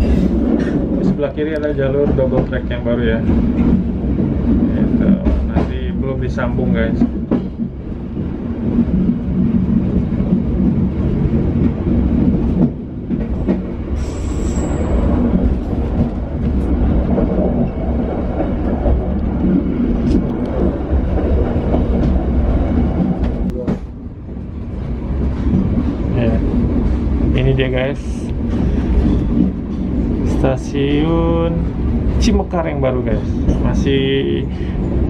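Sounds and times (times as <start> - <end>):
train rumble with engine hum: 0.0 - 35.0
short high wheel squeal: 14.0 - 14.9.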